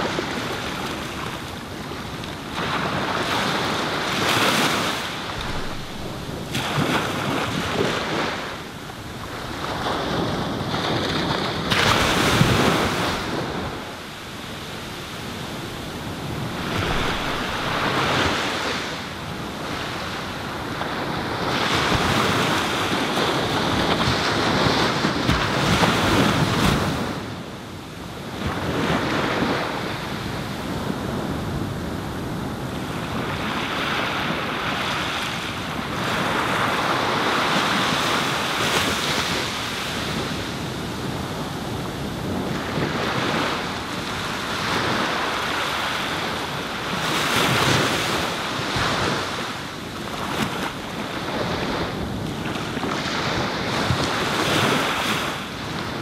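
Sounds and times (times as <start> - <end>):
wind buffeting microphone: 0.0 - 27.4
waves breaking on beach: 0.0 - 56.0.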